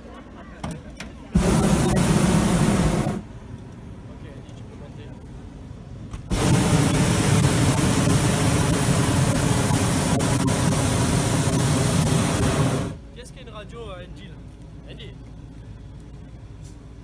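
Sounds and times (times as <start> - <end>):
propane burner blast: 1.3 - 3.3, 6.3 - 13.0.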